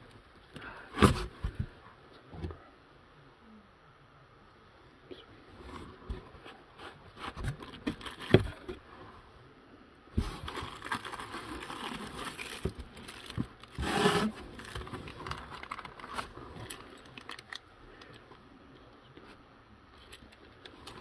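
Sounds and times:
packaging rustling and crinkling: 0:07.1 - 0:08.8, 0:10.2 - 0:18.1.

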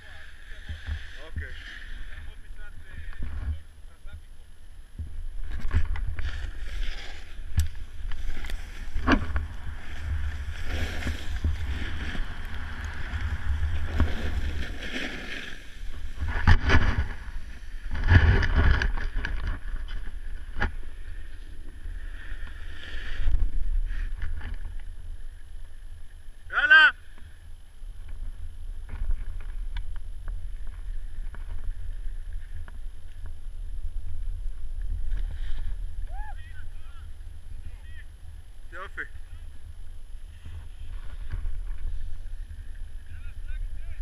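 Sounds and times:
snowboard scraping over snow: 0:00.0 - 0:03.7, 0:05.6 - 0:25.6.

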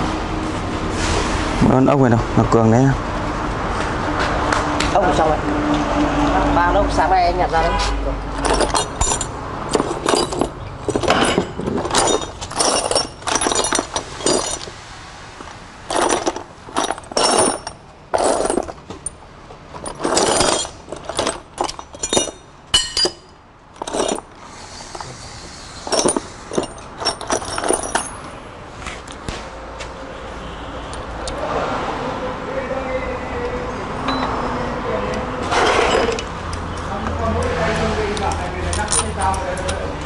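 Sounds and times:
bolts and tools clinking: 0:08.3 - 0:14.8, 0:15.4 - 0:25.0, 0:25.8 - 0:28.3, 0:35.4 - 0:37.6, 0:38.2 - 0:40.0.

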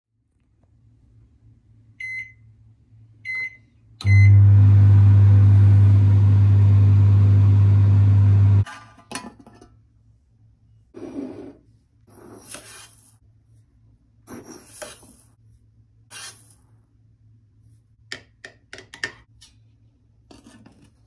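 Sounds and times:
microwave oven humming: 0:03.2 - 0:08.6
microwave keypad beeping: 0:03.3 - 0:04.8.

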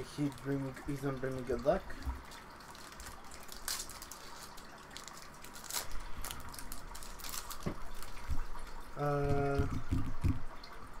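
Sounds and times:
foil wrapper tearing and crinkling: 0:02.7 - 0:08.4.

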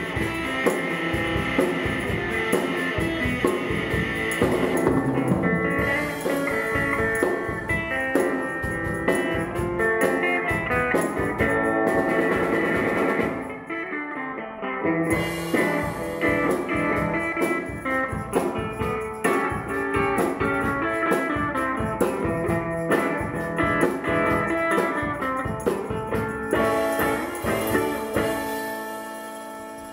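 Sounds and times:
drum kit: 0:00.0 - 0:13.6, 0:15.0 - 0:29.9
tambourines shaken: 0:00.0 - 0:13.6, 0:15.0 - 0:29.9
electric guitar through amp: 0:00.0 - 0:29.9.

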